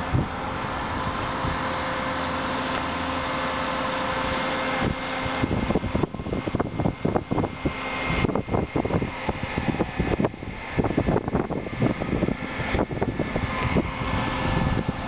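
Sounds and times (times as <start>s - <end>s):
wind buffeting microphone: 0.0s - 2.0s, 4.7s - 15.0s
engine and hydraulic drive hum: 0.0s - 15.0s.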